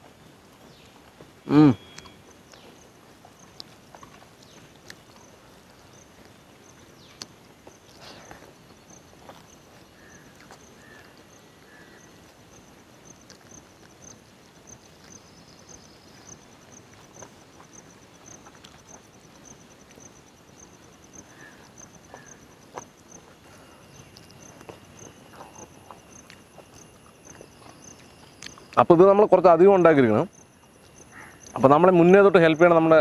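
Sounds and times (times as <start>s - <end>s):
insect chirping in short pulses: 1.4s - 33.0s
hands eating off leaves: 3.3s - 20.1s, 21.1s - 29.0s.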